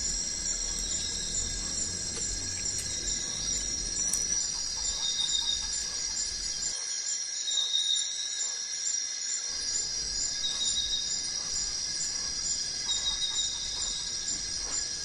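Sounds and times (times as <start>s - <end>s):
insects shrilling: 0.0s - 6.8s, 9.5s - 15.0s
faint chirps: 0.0s - 8.1s, 9.5s - 15.0s.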